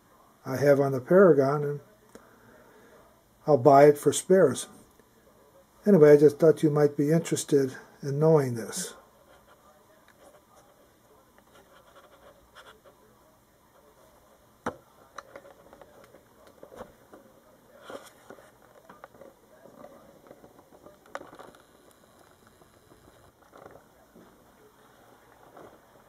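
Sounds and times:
handling clicks and rubbing: 15.1s - 22.3s.

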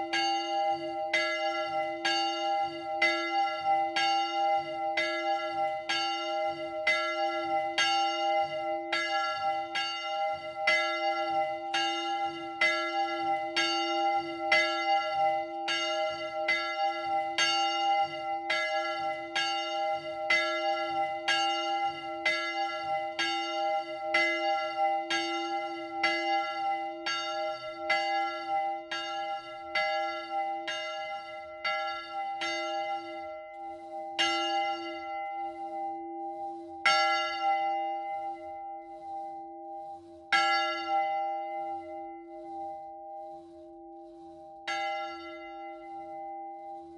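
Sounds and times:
church bell ringing: 0.0s - 46.9s.

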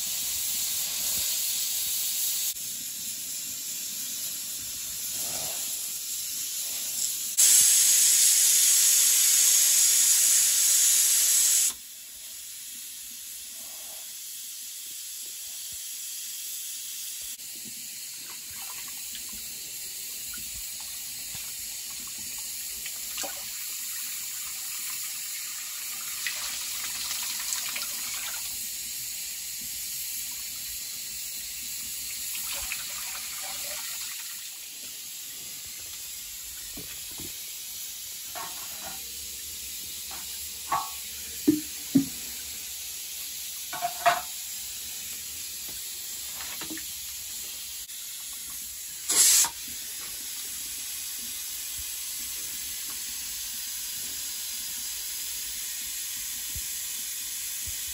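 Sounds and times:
short loud hiss: 6.6s - 11.8s, 49.0s - 49.7s
water splashing in a sink: 17.5s - 28.6s, 31.6s - 34.7s
metal pots clinking: 40.1s - 42.2s, 43.7s - 44.4s.

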